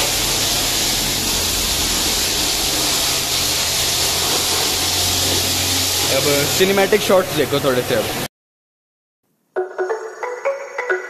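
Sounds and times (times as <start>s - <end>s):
pressure washer spraying water: 0.0s - 8.3s.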